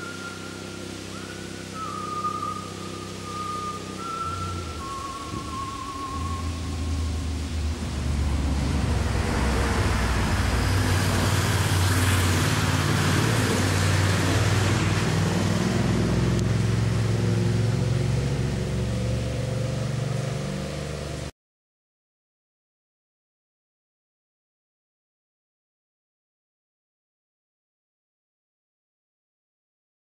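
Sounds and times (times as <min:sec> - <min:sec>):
vehicle engine running: 0:00.0 - 0:21.3.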